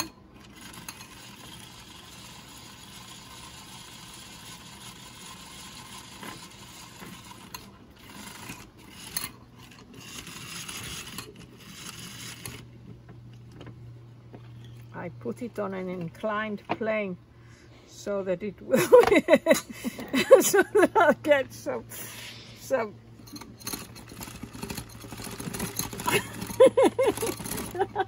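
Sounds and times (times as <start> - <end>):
beater scraping bowl: 0.0 - 12.7, 22.0 - 28.0.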